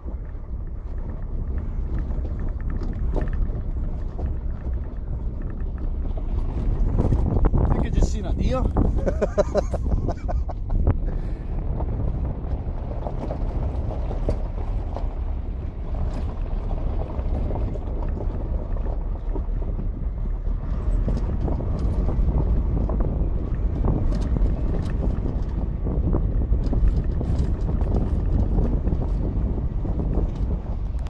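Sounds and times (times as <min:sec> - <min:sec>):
knocks and rattles: 0:00.0 - 0:11.0
truck rumbling on dirt track: 0:00.0 - 0:31.0
wind buffeting microphone: 0:00.0 - 0:31.0.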